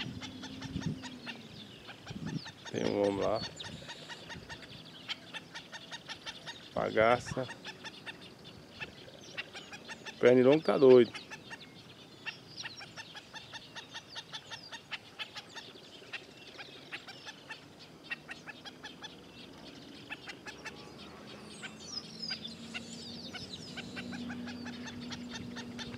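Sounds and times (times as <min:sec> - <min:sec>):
birds giving sharp alarm calls: 0:00.0 - 0:25.9
high falling bird calls: 0:00.0 - 0:25.9.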